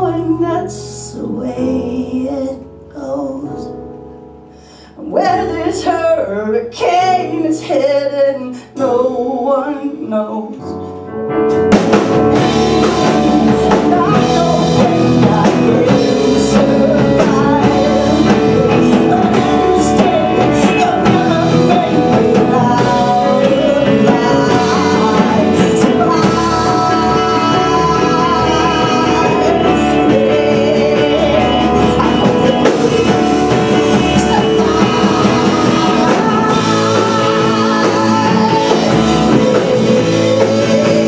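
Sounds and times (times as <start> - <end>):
rock band playing: 11.5 - 41.0
woman singing loudly: 12.6 - 41.0.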